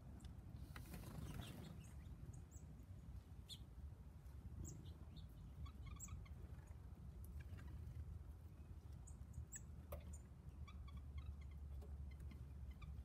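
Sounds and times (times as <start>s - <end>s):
low steady rumble: 0.0s - 13.0s
songbirds chirping: 0.0s - 13.0s.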